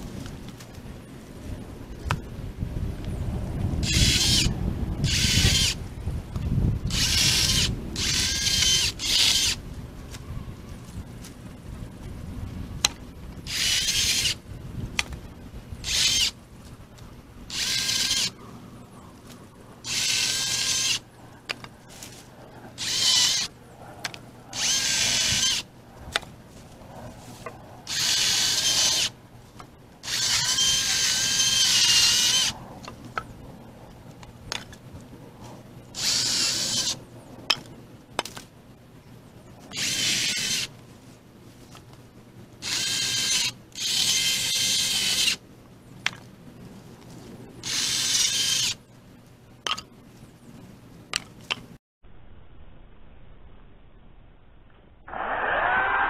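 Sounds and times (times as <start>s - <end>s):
electric power saw whining: 3.8s - 5.8s, 6.9s - 9.6s, 22.8s - 23.5s, 30.0s - 32.5s.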